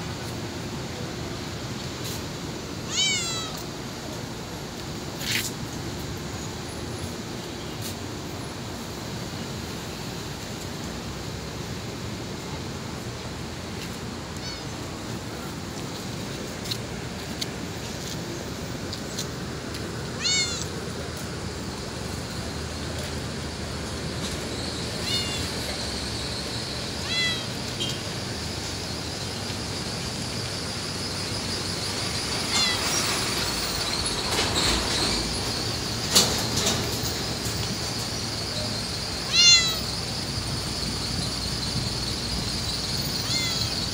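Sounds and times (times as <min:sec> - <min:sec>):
background hiss: 0:00.0 - 0:43.9
cat meowing: 0:02.9 - 0:03.6, 0:20.2 - 0:20.7, 0:25.0 - 0:25.5, 0:27.0 - 0:27.5, 0:32.5 - 0:32.9, 0:39.3 - 0:39.9, 0:43.2 - 0:43.7.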